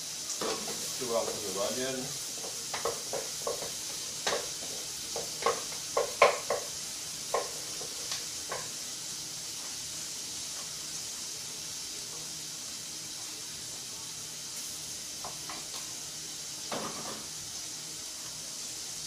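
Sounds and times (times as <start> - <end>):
onions sizzling in a pot: 0.0 - 19.0
wooden spoon knocking on pot: 2.4 - 6.7, 7.3 - 8.7.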